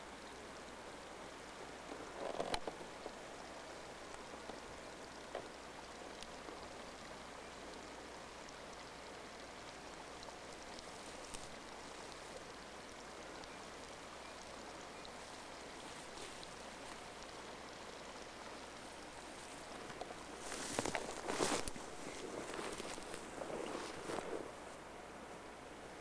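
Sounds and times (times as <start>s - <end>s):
running creek water: 0.0s - 26.0s
light ticks: 3.8s - 24.5s.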